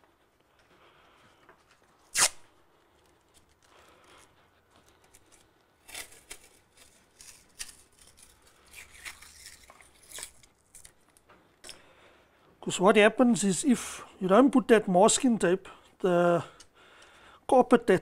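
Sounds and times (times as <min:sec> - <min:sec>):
masking tape scratching and tearing: 0:02.0 - 0:02.5, 0:05.1 - 0:10.8.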